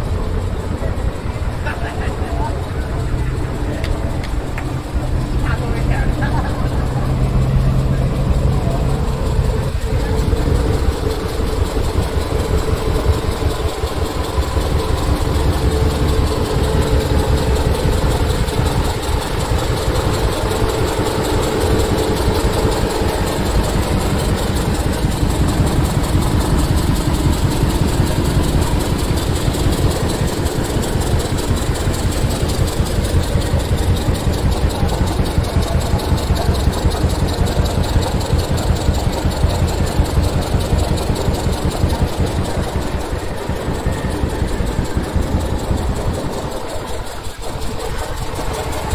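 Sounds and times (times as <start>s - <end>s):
diesel truck engine idling: 0.0s - 48.9s.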